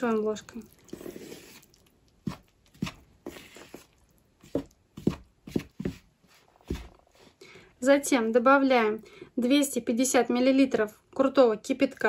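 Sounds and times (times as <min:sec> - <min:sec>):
spoon scraping plastic bowl: 0:00.7 - 0:07.0.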